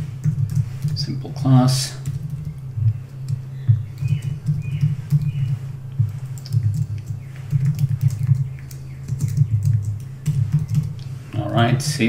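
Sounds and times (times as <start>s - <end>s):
keyboard typing: 0.0s - 1.2s, 2.0s - 11.1s.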